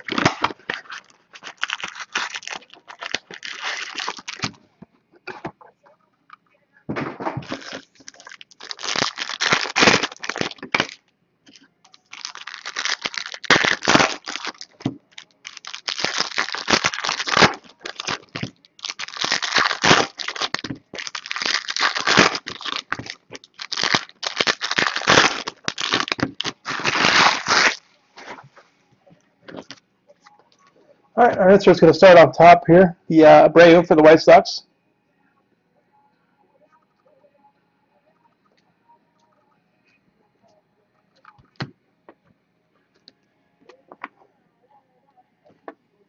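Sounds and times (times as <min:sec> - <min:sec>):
foil wrappers tearing and crumpling: 0:00.0 - 0:04.6, 0:07.4 - 0:11.0, 0:11.9 - 0:27.8.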